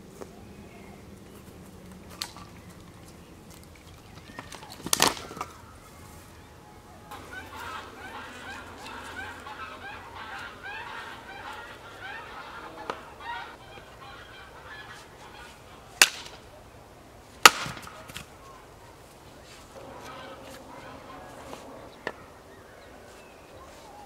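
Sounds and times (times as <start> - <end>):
birds calling: 0.0 - 24.0
axe chopping firewood: 16.0 - 16.4, 17.4 - 18.3.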